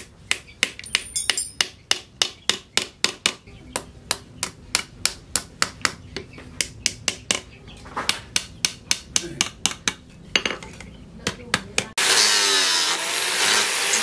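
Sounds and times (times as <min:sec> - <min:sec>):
hammer tapping metal pins: 0:00.0 - 0:03.4.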